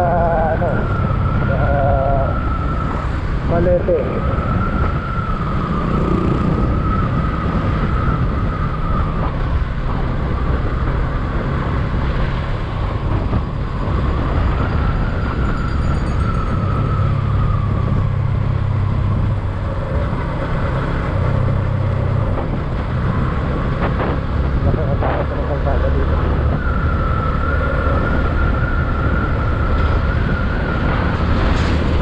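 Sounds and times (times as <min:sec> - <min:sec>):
wind and road noise: 0:00.0 - 0:32.0
thin wavering whine: 0:12.6 - 0:22.6.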